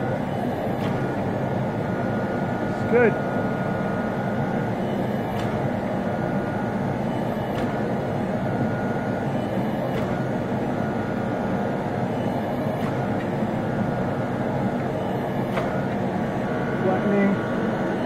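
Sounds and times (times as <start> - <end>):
hydraulic pump and motor running: 0.0 - 18.0.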